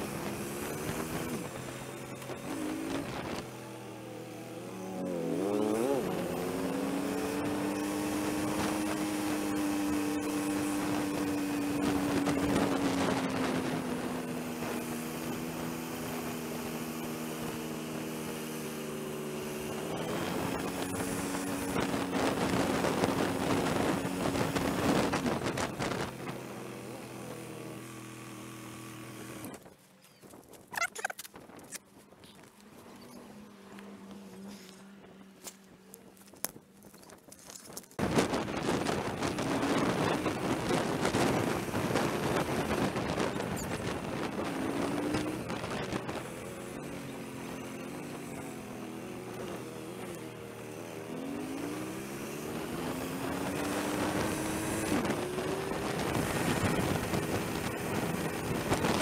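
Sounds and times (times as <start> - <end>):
motorcycle engine running: 0.0 - 59.0
wind rush: 37.8 - 46.4, 52.6 - 59.0.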